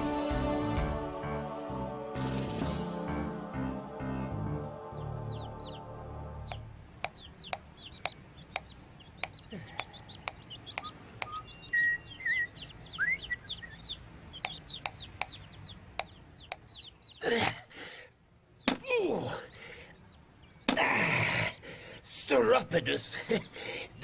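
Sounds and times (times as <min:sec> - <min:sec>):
steady ticking: 0:06.4 - 0:12.4, 0:13.0 - 0:17.1
high bird-like chirps: 0:06.4 - 0:17.2.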